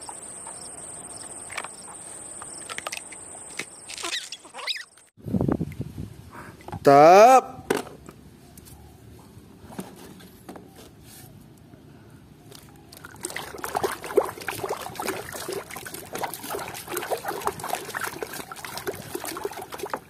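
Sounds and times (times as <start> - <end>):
water sloshing and splashing: 12.5 - 20.0.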